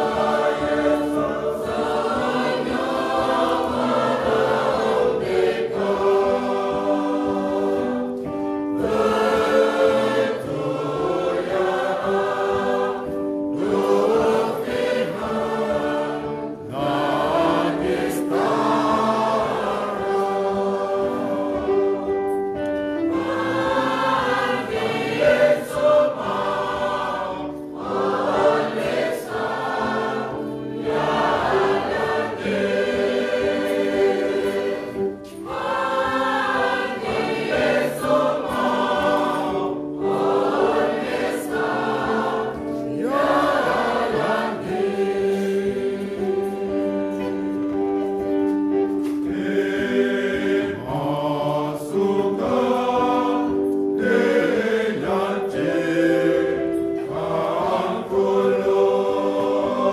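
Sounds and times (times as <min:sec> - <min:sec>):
choir singing a hymn: 0:00.0 - 0:59.9.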